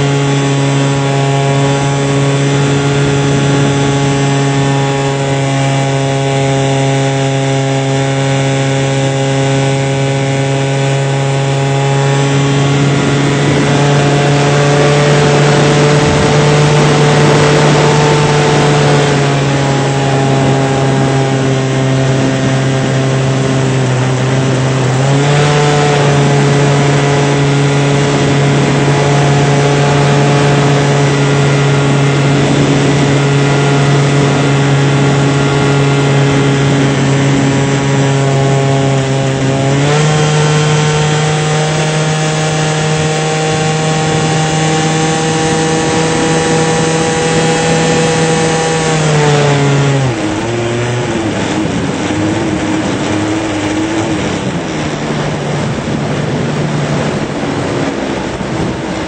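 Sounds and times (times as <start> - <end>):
model airplane motor buzzing: 0.0 - 59.0
rush of air: 0.0 - 59.0.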